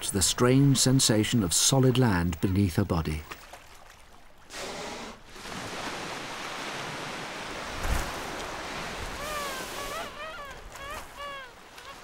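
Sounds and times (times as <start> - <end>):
surf washing on beach: 4.6 - 12.0
short high downward calls: 9.2 - 12.0.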